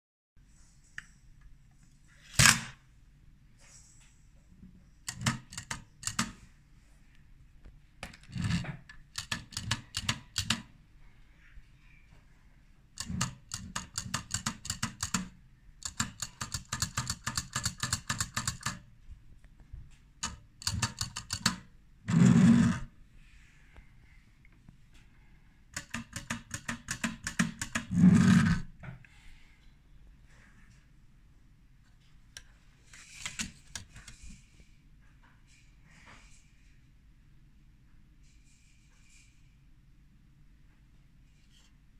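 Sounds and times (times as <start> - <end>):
small mechanical clicks: 5.1 - 6.4, 8.3 - 10.7, 13.0 - 18.8, 20.2 - 21.6.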